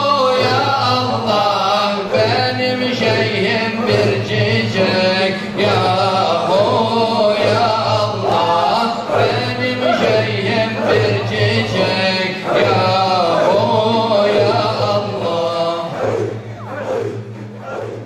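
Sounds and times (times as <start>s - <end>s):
men chanting in rhythm: 0.0s - 18.0s.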